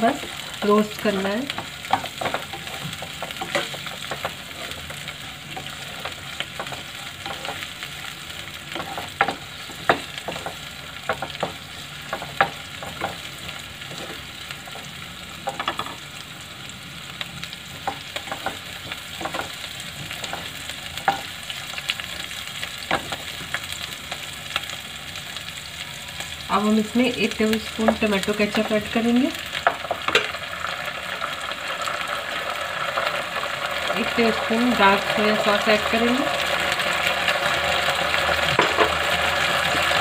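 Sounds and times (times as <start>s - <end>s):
vegetables sizzling in oil: 0.0s - 40.0s
spatula scraping and tapping pan: 1.5s - 7.8s, 8.6s - 16.0s, 17.7s - 21.4s, 38.5s - 39.0s.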